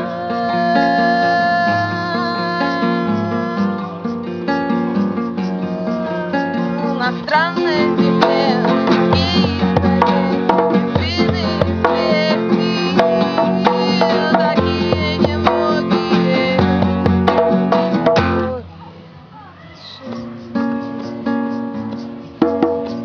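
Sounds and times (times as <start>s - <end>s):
person singing: 0.0s - 20.1s
acoustic guitar strumming: 0.0s - 23.0s
drum beating: 7.4s - 18.6s, 20.3s - 23.0s.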